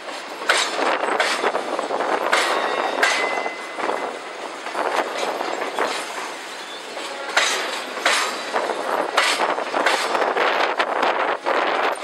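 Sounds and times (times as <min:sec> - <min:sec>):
train wheels clattering over rail joints: 0:00.0 - 0:12.0
high wheel squeal: 0:05.7 - 0:07.1.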